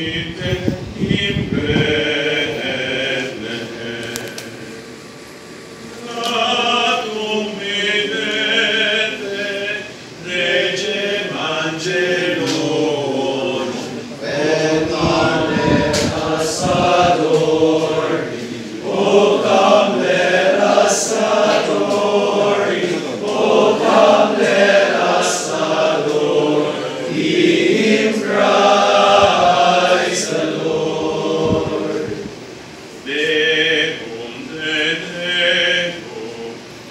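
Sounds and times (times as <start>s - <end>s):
male choir singing: 0.0s - 4.9s, 5.9s - 32.4s, 33.0s - 36.9s.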